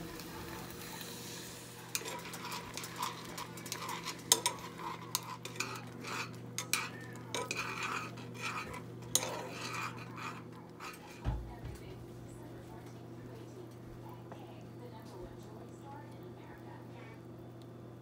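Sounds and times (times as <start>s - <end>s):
low steady hum: 0.0s - 18.0s
metal utensil scraping saucepan: 1.8s - 11.3s.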